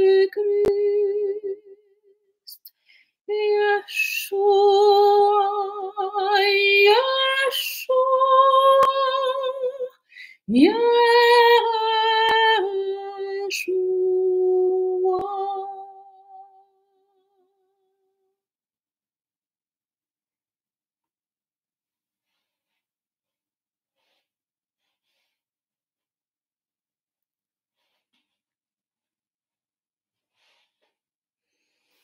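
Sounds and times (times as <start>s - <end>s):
woman singing: 0.0s - 1.8s, 3.3s - 16.7s
quick breaths: 2.7s - 3.2s.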